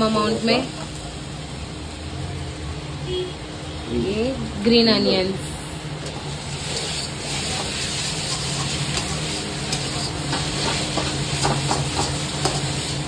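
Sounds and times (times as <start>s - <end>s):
noodles sizzling in a wok: 0.0s - 13.0s
spatula scraping metal pan: 6.5s - 13.0s.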